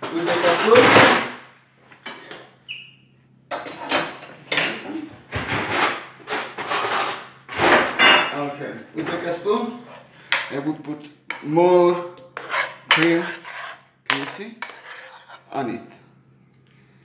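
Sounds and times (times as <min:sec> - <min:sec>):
metal spoon scraping a pan: 0:12.2 - 0:15.5.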